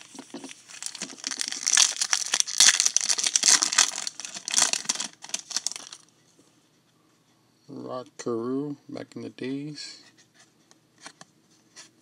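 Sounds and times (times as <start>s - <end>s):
plastic foil wrapper crinkling and tearing: 0.4s - 6.0s.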